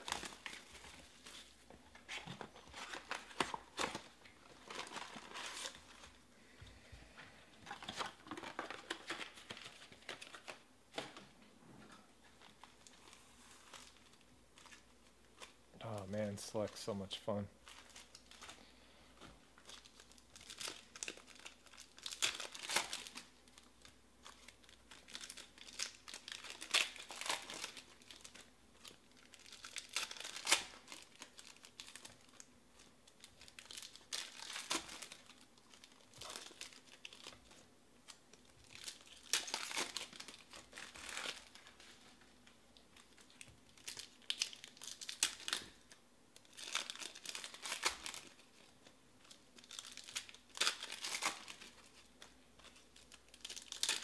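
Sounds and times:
foil wrappers crinkling and tearing: 0.0s - 6.2s, 7.6s - 10.6s, 17.6s - 18.9s, 19.6s - 54.0s.

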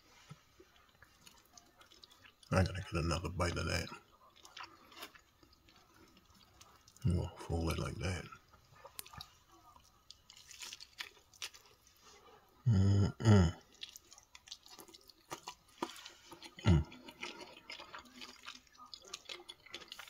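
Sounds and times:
person chewing with lip-smacking: 0.6s - 2.5s, 4.1s - 7.0s, 8.6s - 12.0s, 13.3s - 20.0s.

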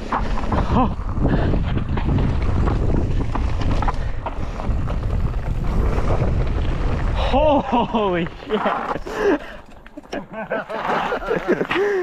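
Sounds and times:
wind buffeting microphone: 0.0s - 8.4s
bike clicking and rattling: 0.0s - 12.0s
tyres rumbling over dirt: 0.0s - 12.0s.

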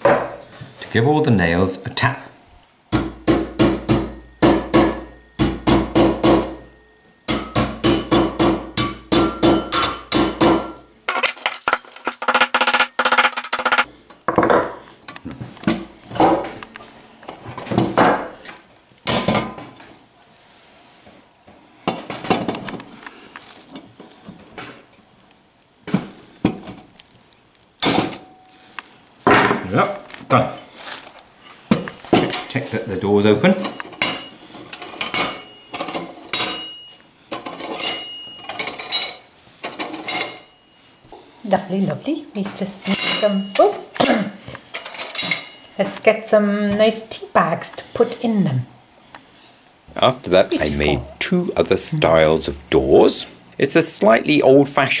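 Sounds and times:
hammer tapping nails into steel: 2.9s - 6.7s, 7.3s - 10.8s
metal clinks and knocks: 3.0s - 14.6s, 33.6s - 40.6s.

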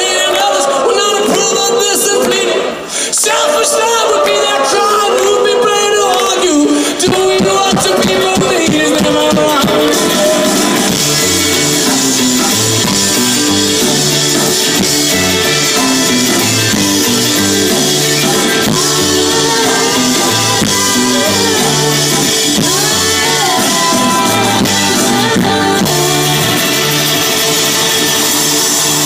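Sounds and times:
live rock band playing: 6.8s - 29.0s.

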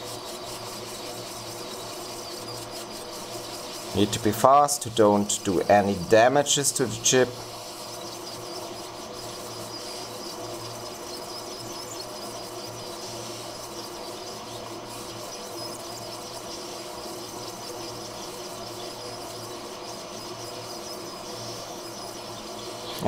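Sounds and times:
hot air blower hissing: 0.0s - 23.0s
steady hum: 0.0s - 23.0s.

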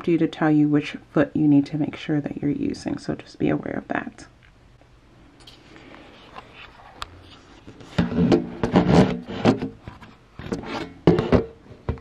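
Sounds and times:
rubbing and scraping: 6.0s - 11.9s.

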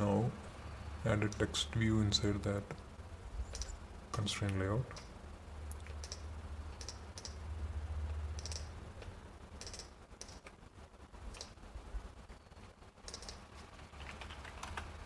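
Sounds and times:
steady low hum: 0.0s - 15.0s
computer mouse clicking: 3.5s - 3.8s, 5.7s - 7.4s, 8.3s - 10.6s, 11.3s - 11.6s, 13.0s - 14.9s.

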